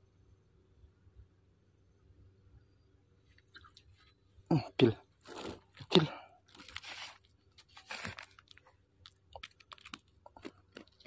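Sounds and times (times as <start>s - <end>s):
crunching and rustling over dry grass: 5.2s - 11.0s.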